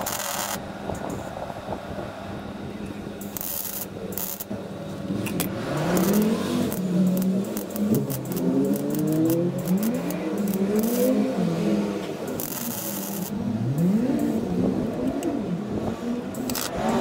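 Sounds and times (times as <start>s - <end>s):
welder crackling hiss: 0.0s - 0.6s, 3.2s - 4.5s, 12.4s - 13.4s
engine running: 0.0s - 17.0s.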